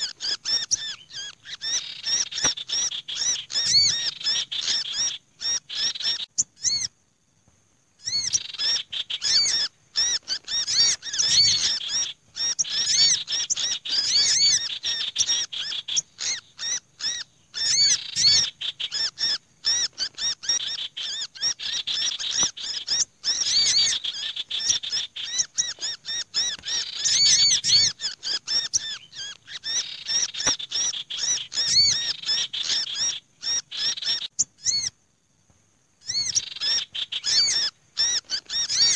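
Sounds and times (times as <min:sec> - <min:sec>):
agitated songbird chirps and chatter: 0:00.0 - 0:06.9, 0:08.0 - 0:35.0, 0:36.0 - 0:38.9.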